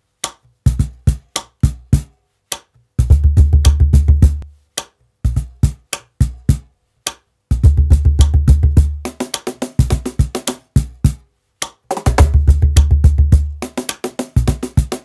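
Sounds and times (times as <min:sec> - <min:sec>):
cajon played by hand: 0:11.9 - 0:15.0.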